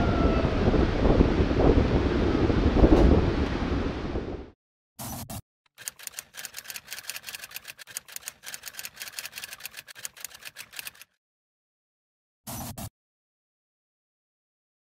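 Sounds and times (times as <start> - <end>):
typewriter key clicks: 5.8 - 11.0.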